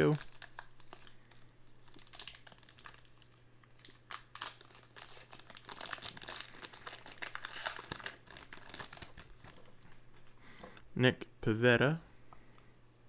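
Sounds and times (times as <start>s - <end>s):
wrapper crinkling and tearing: 0.0s - 10.4s.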